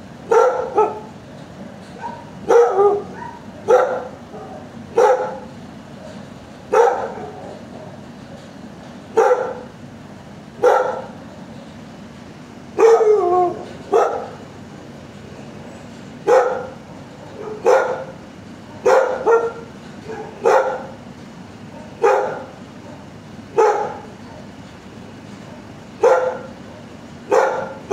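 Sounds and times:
dog barking with echo: 0:00.3 - 0:01.1, 0:02.0 - 0:05.4, 0:06.7 - 0:07.4, 0:09.2 - 0:09.7, 0:10.6 - 0:11.1, 0:12.8 - 0:13.3, 0:13.9 - 0:14.4, 0:16.3 - 0:16.8, 0:17.4 - 0:18.1, 0:18.8 - 0:20.9, 0:21.8 - 0:23.0, 0:23.6 - 0:24.1, 0:26.0 - 0:26.5, 0:27.3 - 0:27.8.

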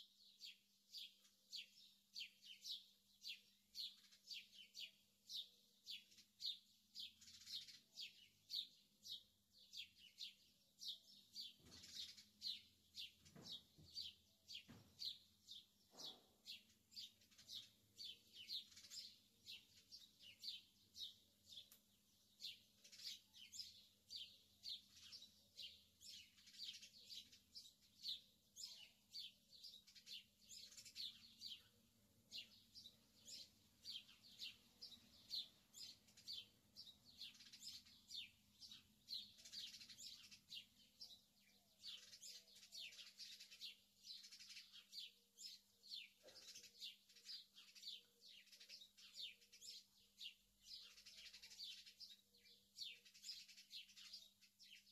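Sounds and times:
faint birdsong chirps: 0:00.0 - 0:54.9.

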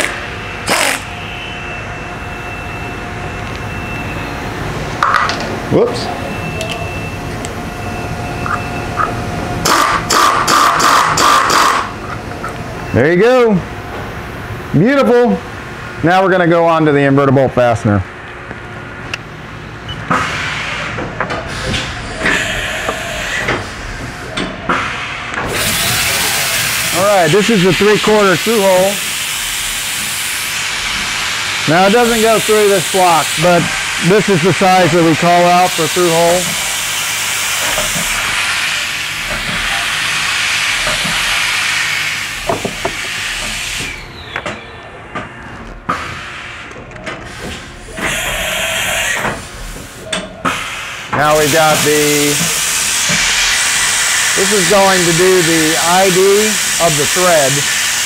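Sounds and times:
cnc mill running: 0:00.0 - 0:16.4, 0:18.2 - 0:58.0.

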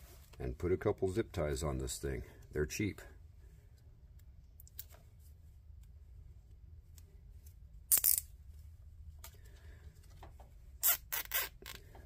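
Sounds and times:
zip tie ratcheting: 0:07.9 - 0:08.3, 0:10.8 - 0:11.9.

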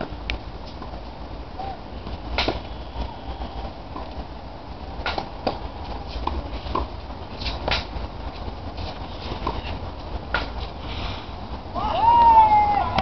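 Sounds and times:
tennis ball struck by racket: 0:02.4 - 0:02.6, 0:05.0 - 0:05.6, 0:06.2 - 0:07.9, 0:10.3 - 0:10.6.

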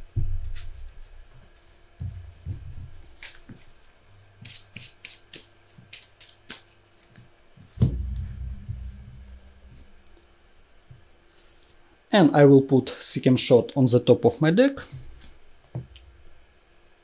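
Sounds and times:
low knocks: 0:02.0 - 0:03.1, 0:07.7 - 0:10.6
cards shuffling: 0:02.9 - 0:07.3.

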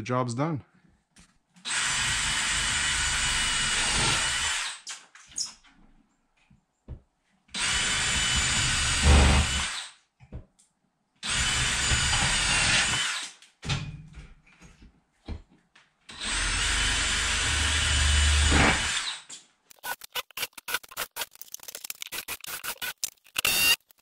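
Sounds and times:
power drill driving screws: 0:01.7 - 0:04.8, 0:07.6 - 0:09.9, 0:11.2 - 0:13.4, 0:16.1 - 0:21.3, 0:22.1 - 0:23.8.

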